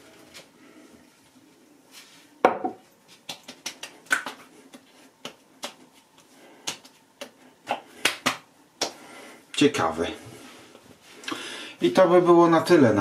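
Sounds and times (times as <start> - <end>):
palms slapping face: 3.1 - 9.0.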